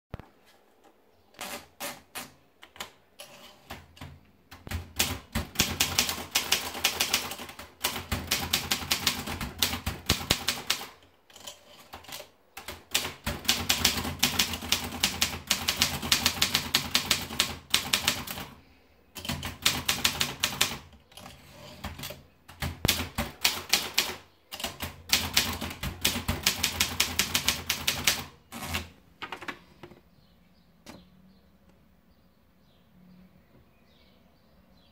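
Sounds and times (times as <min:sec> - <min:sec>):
typewriter keystrokes: 0:01.4 - 0:18.5, 0:19.2 - 0:28.9.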